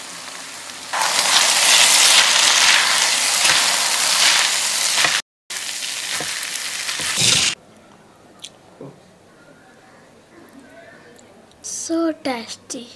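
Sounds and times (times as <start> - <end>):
food sizzling in hot pan: 0.0 - 7.6.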